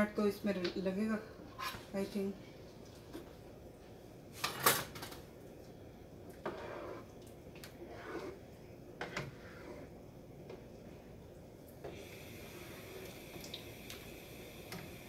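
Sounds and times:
spatula stirring in water: 6.2s - 10.8s.

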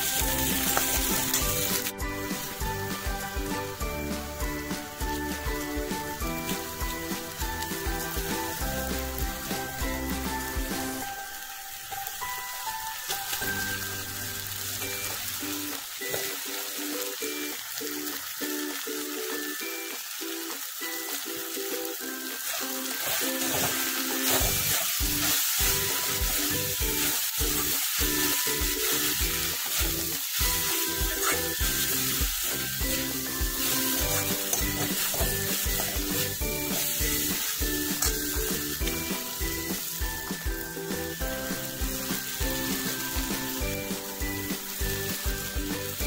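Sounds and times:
noodles sizzling in a wok: 0.0s - 46.0s
steel spoon stirring in wok: 22.4s - 39.0s.

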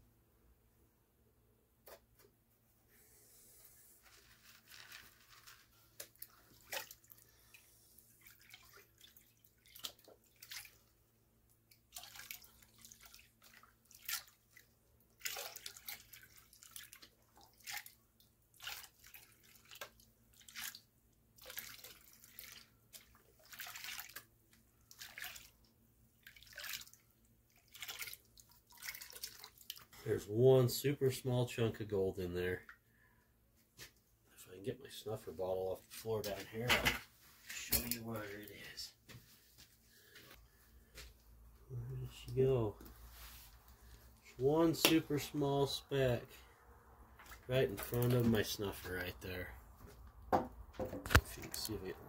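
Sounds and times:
water sloshing in a pan: 6.0s - 30.2s, 47.0s - 49.3s.

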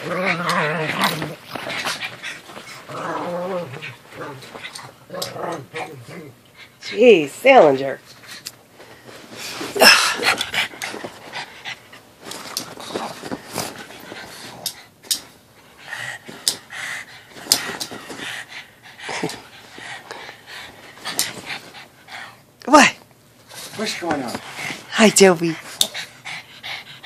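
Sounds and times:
dogs panting hard: 10.2s - 22.5s, 23.5s - 27.0s.

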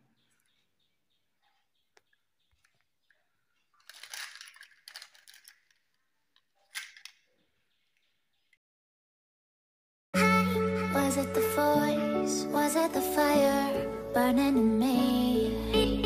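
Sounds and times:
plastic rustling: 3.6s - 7.3s.

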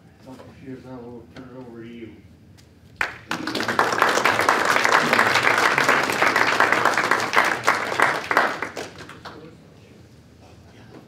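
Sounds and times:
audience applauding: 3.0s - 9.4s.

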